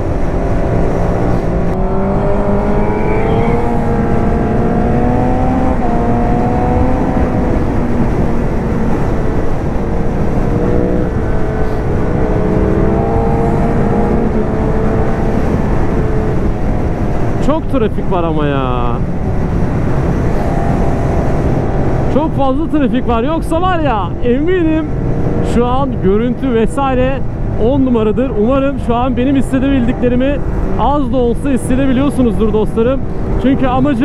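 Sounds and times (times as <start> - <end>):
motorcycle engine revving under load: 0.0 - 16.9
wind rush on microphone: 0.0 - 34.0.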